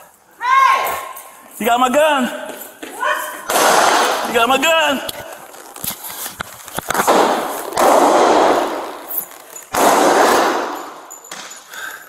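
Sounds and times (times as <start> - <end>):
pistol shots: 3.5 - 4.3, 6.9 - 9.1, 9.7 - 11.1.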